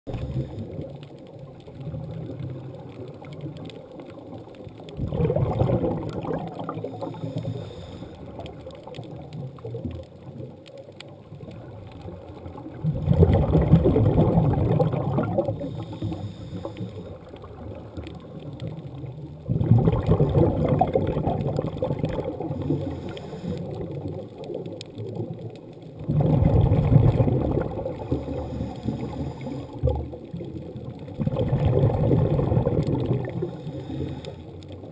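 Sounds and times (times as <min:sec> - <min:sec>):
exhaled bubbles underwater: 0:00.1 - 0:34.9
regulator hiss: 0:33.5 - 0:34.4.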